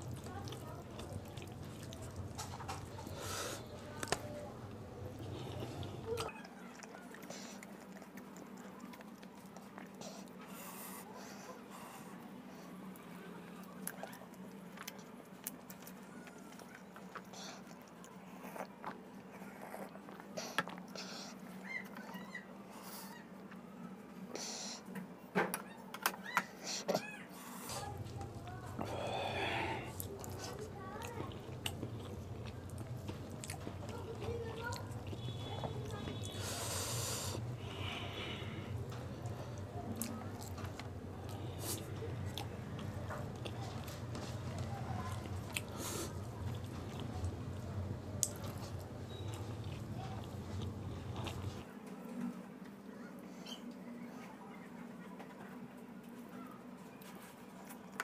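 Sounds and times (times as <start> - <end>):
chewing and lip-smacking: 0.0 - 12.2, 12.8 - 23.7, 25.6 - 51.8, 57.0 - 58.0
wet smacks and clicks: 3.7 - 4.3, 38.8 - 51.6
steady low hum: 27.6 - 51.6.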